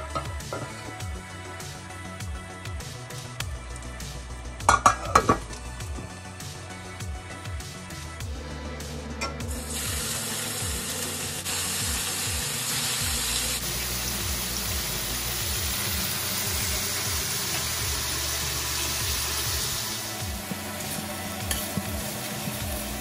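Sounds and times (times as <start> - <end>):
background music with bass: 0.0 - 23.0
meat sizzling in a pan: 9.5 - 23.0.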